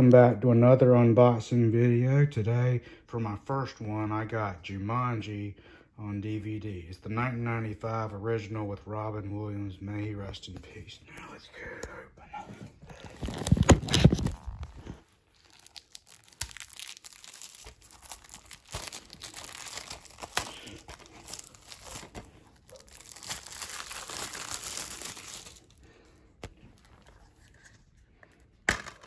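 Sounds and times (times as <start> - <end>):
plastic shrink-wrap crinkling and tearing: 12.9 - 28.0.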